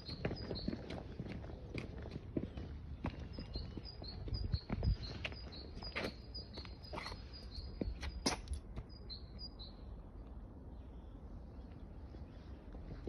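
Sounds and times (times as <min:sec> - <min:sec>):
footsteps on paving stones: 0:00.0 - 0:09.1
small bird chirping: 0:03.3 - 0:09.9.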